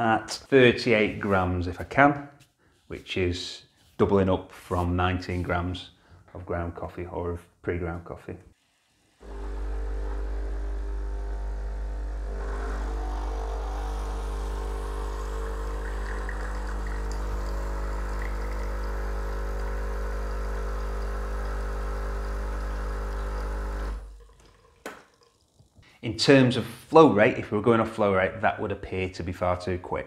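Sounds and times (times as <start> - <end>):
espresso machine pump running: 9.0 - 24.2.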